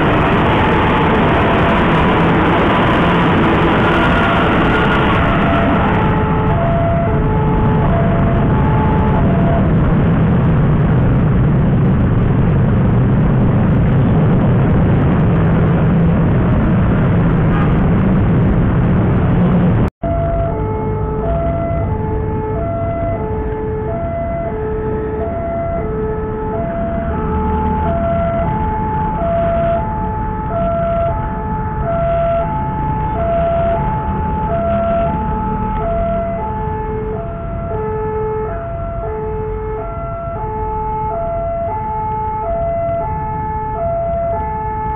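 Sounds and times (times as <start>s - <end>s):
level crossing warning alarm: 0.0s - 10.3s, 20.0s - 44.9s
loud vehicle rumble: 0.0s - 44.9s
motorbike and car engines: 0.0s - 44.9s.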